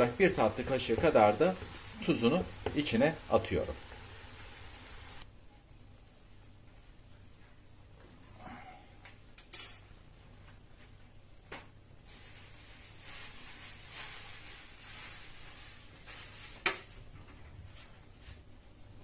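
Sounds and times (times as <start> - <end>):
spice shaker hiss: 12.0 - 16.9.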